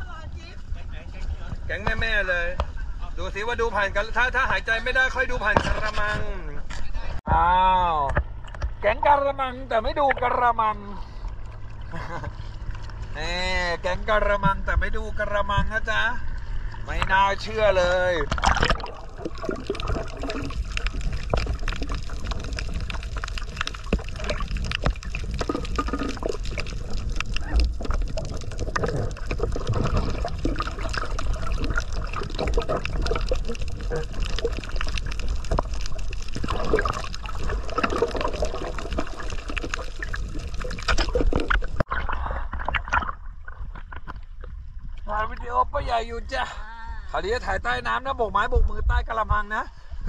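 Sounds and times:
muffled underwater sloshing: 13.8s - 45.4s.

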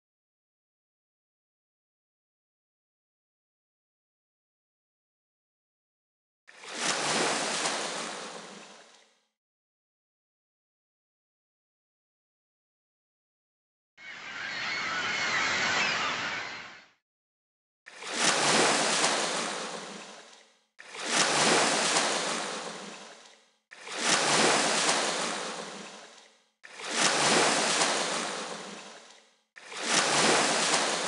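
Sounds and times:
sea waves washing onto shore: 18.0s - 20.2s, 20.8s - 23.1s, 23.8s - 26.0s, 26.7s - 29.0s, 29.6s - 31.0s.

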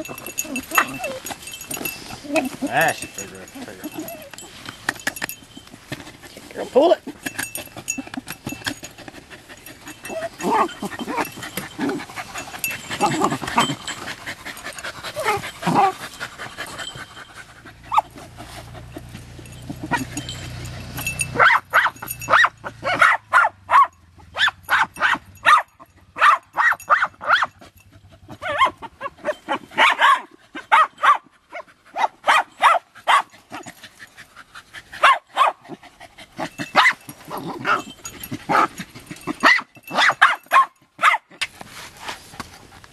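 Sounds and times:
dogs yipping: 0.0s - 41.5s
dogs barking sharply: 18.8s - 27.6s, 28.4s - 33.6s, 35.0s - 35.8s, 36.7s - 37.9s, 39.3s - 41.4s.

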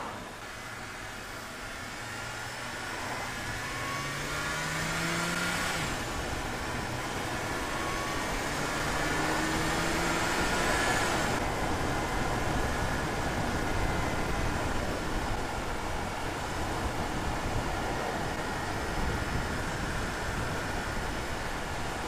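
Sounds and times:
car engine revving: 0.0s - 11.5s
tyre and wind noise: 4.5s - 22.0s.

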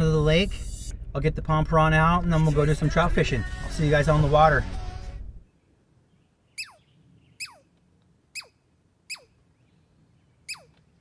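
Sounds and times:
squirrel whistled calls: 6.5s - 7.7s, 8.3s - 9.4s, 10.4s - 10.8s.

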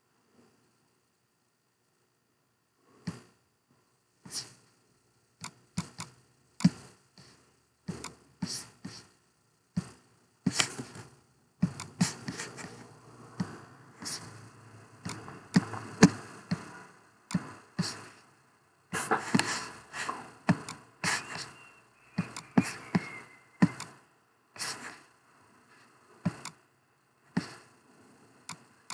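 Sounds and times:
computer mouse clicking: 5.4s - 6.9s, 7.9s - 8.2s, 11.7s - 14.4s, 15.0s - 17.6s, 20.5s - 24.0s, 26.3s - 26.6s, 28.5s - 28.9s.

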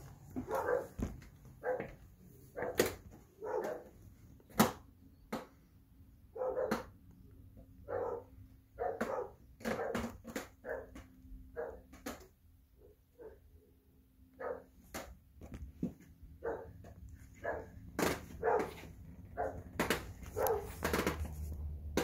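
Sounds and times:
dog barking: 0.4s - 1.0s, 1.6s - 4.0s, 6.3s - 6.9s, 7.8s - 11.9s, 12.8s - 13.7s, 14.3s - 14.8s, 16.4s - 20.9s.

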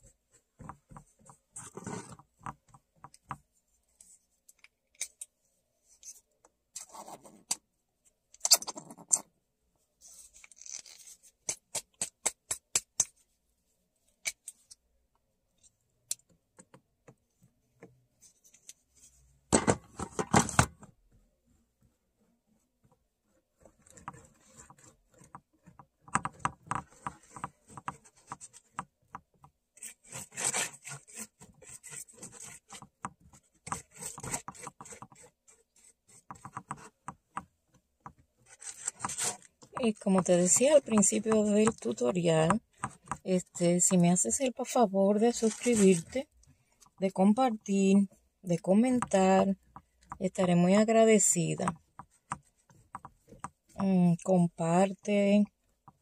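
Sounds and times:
sharp clicks and taps: 11.4s - 13.2s
paint brush rubbing and scraping: 45.4s - 46.2s.

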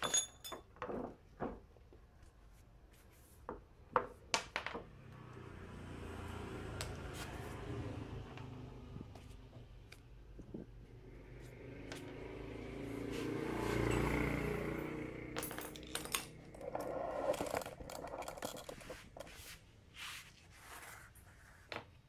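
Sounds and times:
metallic clinks and scrapes: 0.0s - 0.7s, 13.7s - 19.6s.

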